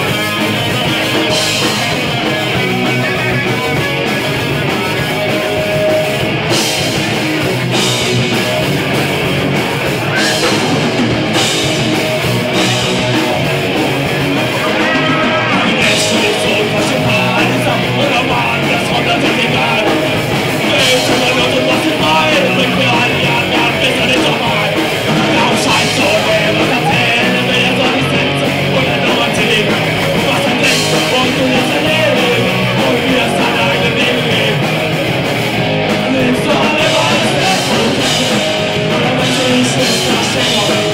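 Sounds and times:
distorted electric guitar: 0.0s - 40.9s
live rock band playing: 0.0s - 40.9s.

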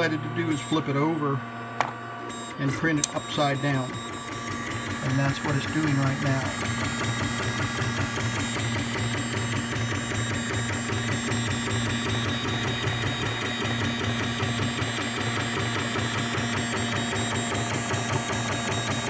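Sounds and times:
high whining tones: 0.0s - 14.4s
three-d printer whirring: 0.0s - 19.0s.

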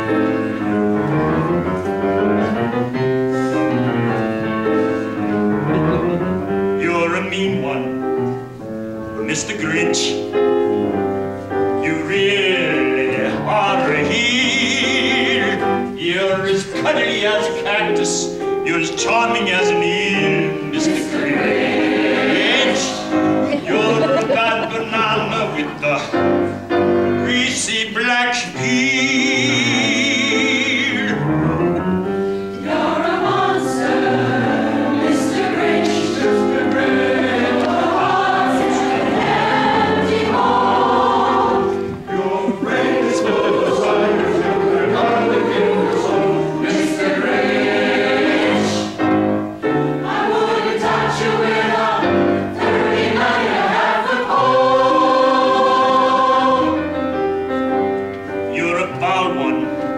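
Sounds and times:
mixed chorus singing: 11.8s - 26.5s, 32.5s - 57.0s.

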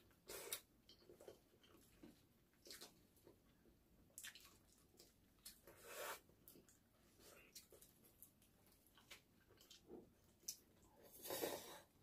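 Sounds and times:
person chewing: 4.1s - 11.6s.

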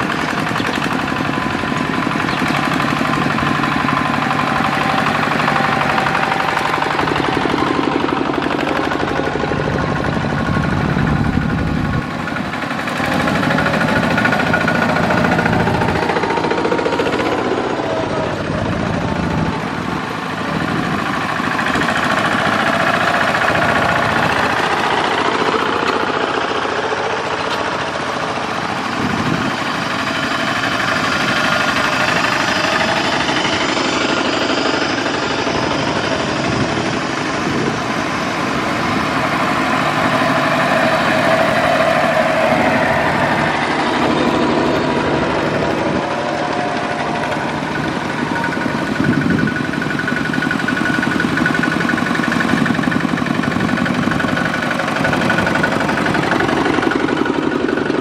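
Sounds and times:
power tiller diesel engines running: 0.0s - 58.0s.

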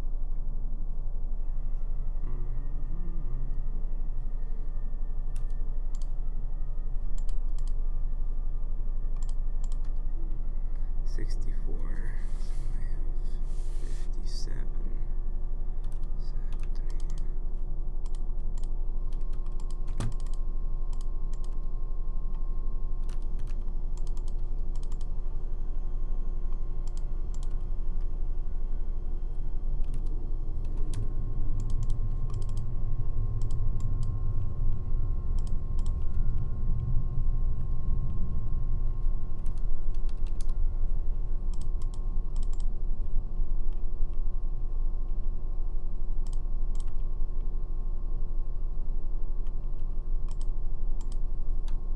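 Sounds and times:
low hum: 0.0s - 51.9s
keyboard and mouse clicks: 7.1s - 7.8s, 9.1s - 10.1s, 15.8s - 17.3s, 18.0s - 21.7s, 23.0s - 25.1s, 26.8s - 27.6s, 29.8s - 31.0s, 31.6s - 32.6s, 33.4s - 34.1s, 35.4s - 36.4s, 39.4s - 40.6s, 41.5s - 43.8s, 46.2s - 47.1s, 49.4s - 51.8s.

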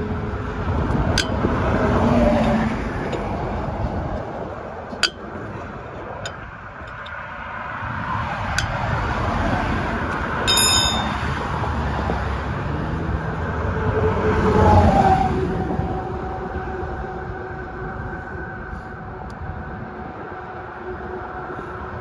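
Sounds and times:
heavy vehicle passing: 0.0s - 22.0s
road traffic rumble: 0.0s - 22.0s.

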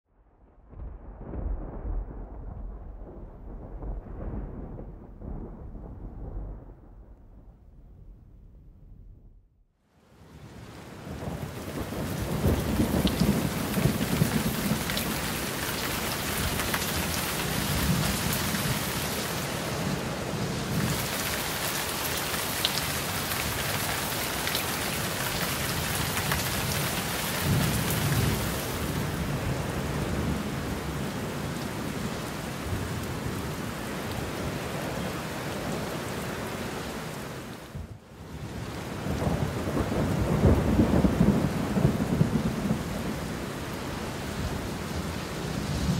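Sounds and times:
low rolls of thunder: 0.1s - 9.4s, 10.8s - 18.9s, 37.8s - 43.3s
heavy rain hiss: 10.4s - 29.6s.

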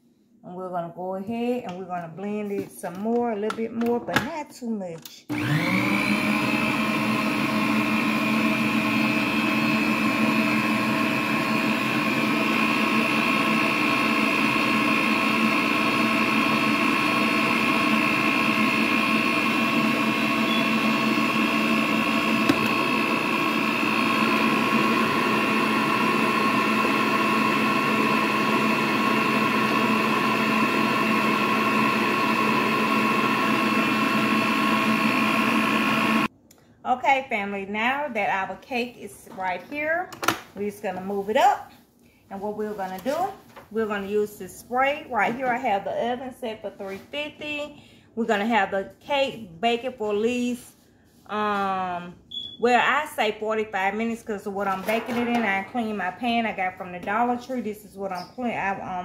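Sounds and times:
stand mixer motor whining: 5.3s - 36.3s.

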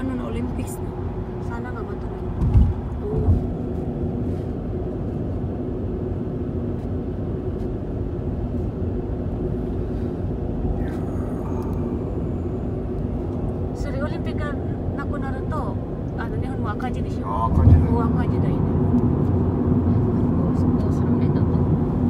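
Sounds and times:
car cabin road noise: 0.0s - 22.0s
faint hum: 8.5s - 16.8s.

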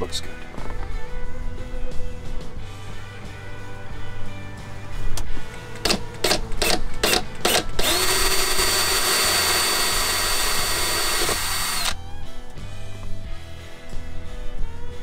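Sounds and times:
cordless drill whining: 5.8s - 12.0s.

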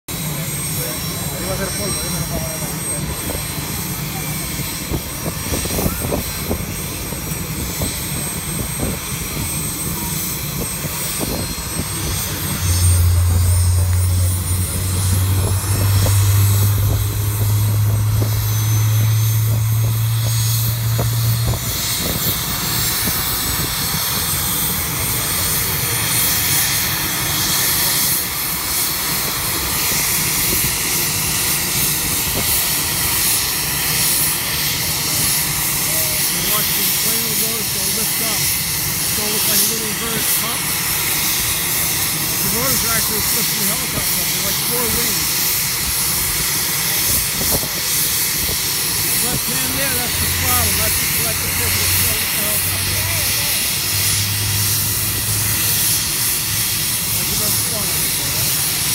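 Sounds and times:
helicopter turbine whine: 0.1s - 58.9s
steady low hum: 1.0s - 27.2s.

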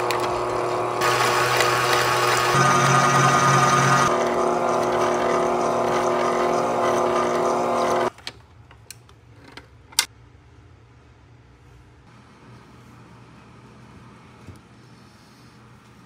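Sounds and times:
stand mixer motor running: 0.0s - 8.1s.

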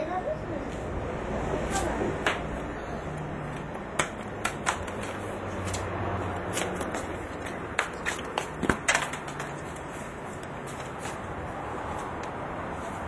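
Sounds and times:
ball bouncing on concrete: 2.2s - 2.6s, 3.5s - 11.2s
light footsteps: 3.4s - 13.0s.

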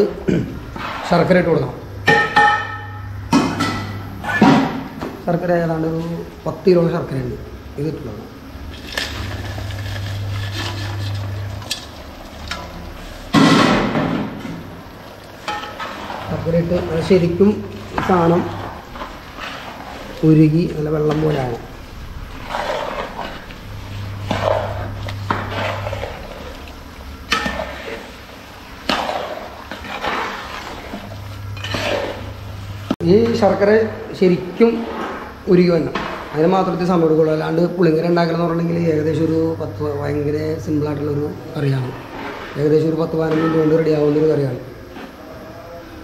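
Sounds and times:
metal ladle scraping a pot: 8.7s - 33.5s, 41.7s - 45.2s.

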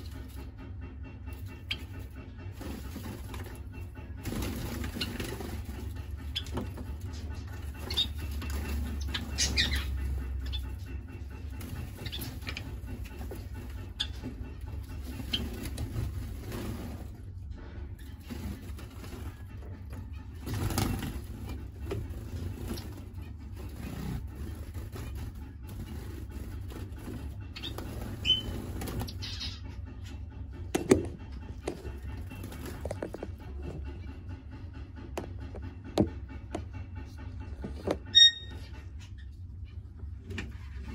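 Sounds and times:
steady low hum: 0.0s - 40.9s
finch chirping: 1.3s - 16.4s, 20.0s - 29.9s, 38.0s - 39.3s
wings fluttering: 1.3s - 17.3s, 18.0s - 29.7s, 30.7s - 33.7s.

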